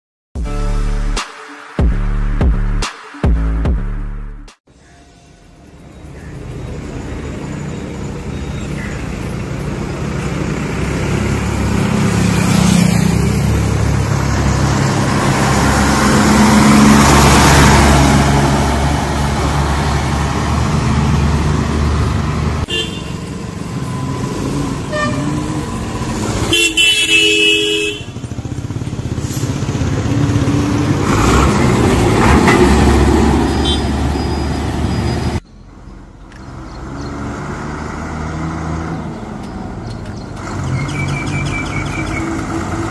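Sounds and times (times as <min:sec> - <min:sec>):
vehicles passing: 0:04.7 - 0:42.9
diesel bus engine: 0:05.3 - 0:42.9
vehicle horn honking: 0:22.6 - 0:23.3, 0:24.8 - 0:25.6, 0:26.4 - 0:28.2, 0:33.6 - 0:34.0.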